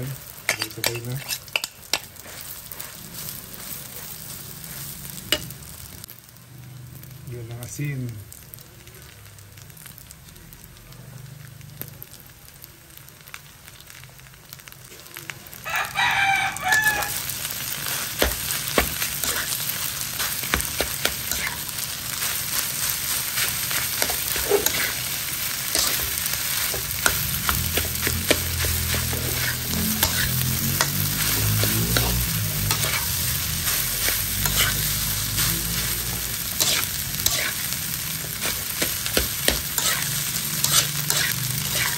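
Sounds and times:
rice sizzling in a wok: 0.0s - 41.9s
metal spatula scraping a wok: 0.3s - 5.5s, 17.8s - 41.9s
rooster crowing: 15.6s - 17.4s.

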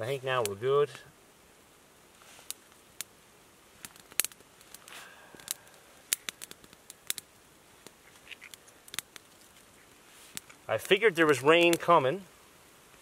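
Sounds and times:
kindling fire crackling: 0.0s - 13.0s
rustle: 0.0s - 13.0s.

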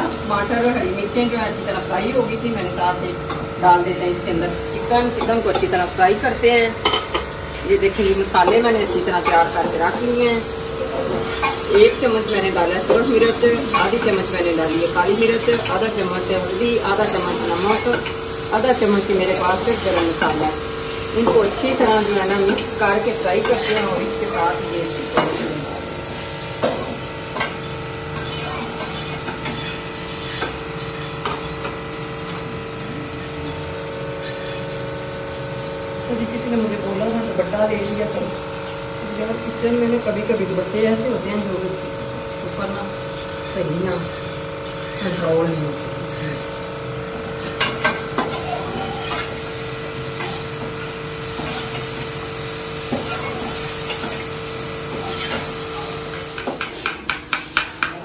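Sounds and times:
steady hum: 0.0s - 48.3s
food sizzling in a pan: 0.0s - 57.9s
spatula scraping against a pan: 11.0s - 11.8s, 12.8s - 15.8s, 23.3s - 24.4s, 28.2s - 31.7s, 47.4s - 49.5s, 50.1s - 52.1s, 52.8s - 55.6s.

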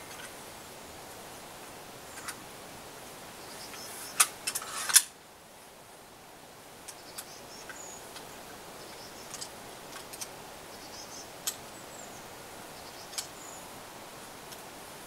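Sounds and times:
small birds chirping: 3.3s - 4.8s, 6.8s - 14.7s.

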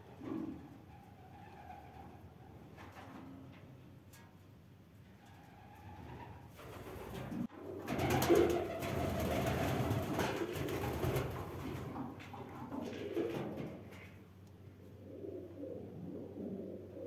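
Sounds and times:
pigeons cooing: 6.0s - 17.0s.

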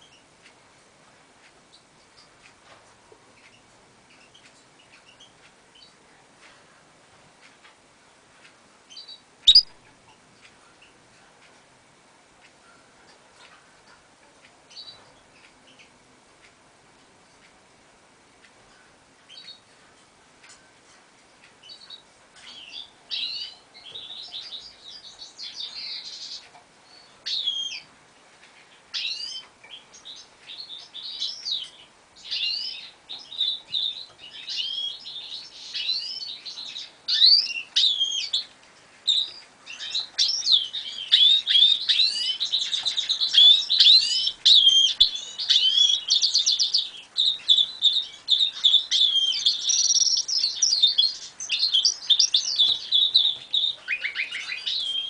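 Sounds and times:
finch singing twittering: 8.9s - 9.8s, 21.6s - 27.9s, 28.9s - 55.0s.

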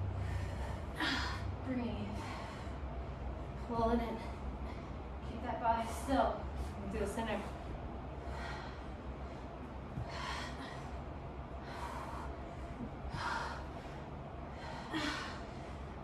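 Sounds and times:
women breathing hard: 0.0s - 3.6s, 7.5s - 16.0s.

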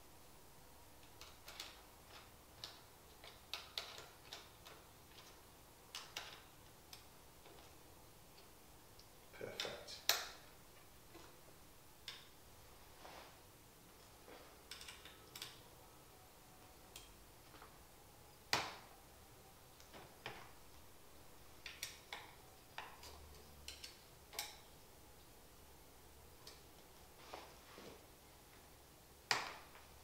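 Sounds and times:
clicks and taps on metal frame: 1.0s - 10.5s, 14.3s - 15.7s, 21.6s - 24.7s.

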